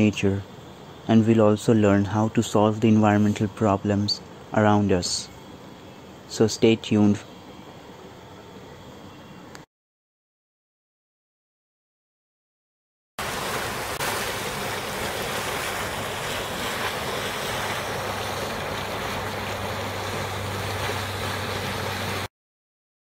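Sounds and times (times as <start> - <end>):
steam venting with rushing hiss: 13.2 - 22.3.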